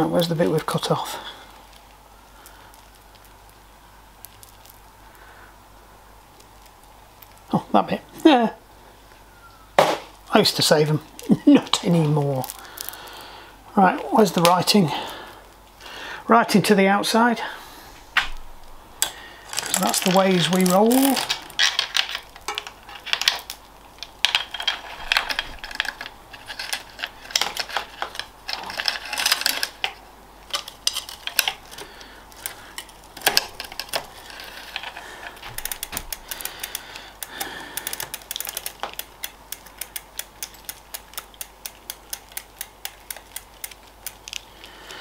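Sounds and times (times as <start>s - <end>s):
bicycle chain clicking and rattling: 19.0s - 45.0s
chain ticking: 30.5s - 44.4s.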